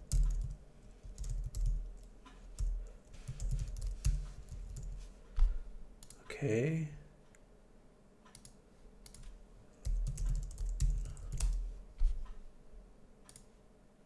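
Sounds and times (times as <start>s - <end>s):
keyboard typing: 0.0s - 5.1s, 8.3s - 11.7s.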